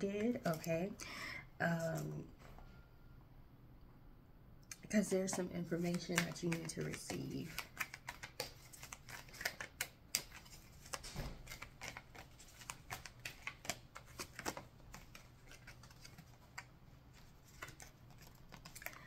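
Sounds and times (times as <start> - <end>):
cards shuffled by hand: 1.8 - 2.1, 5.2 - 19.0.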